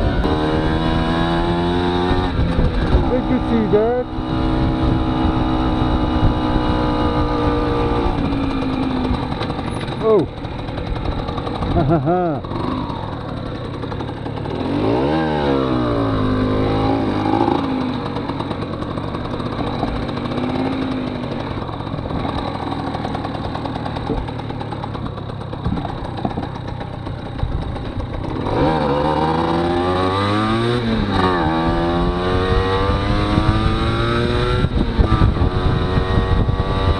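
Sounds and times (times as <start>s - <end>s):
moped engine accelerating: 0.0s - 36.9s.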